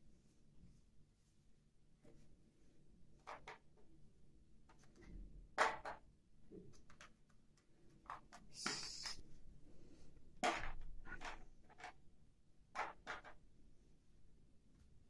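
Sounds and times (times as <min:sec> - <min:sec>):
plastic toy dishes knocking: 0:05.6 - 0:06.0, 0:12.7 - 0:13.4.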